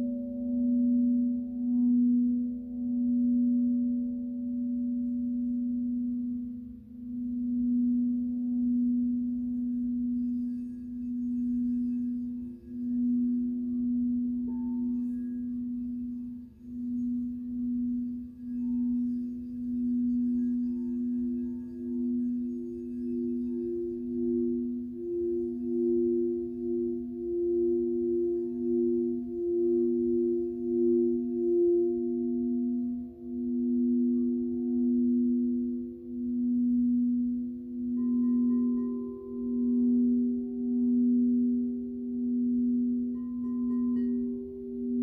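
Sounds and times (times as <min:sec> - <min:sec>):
higher singing bowl tone: 0:00.0 - 0:45.0
lower singing bowl tone wobbling: 0:00.0 - 0:45.0.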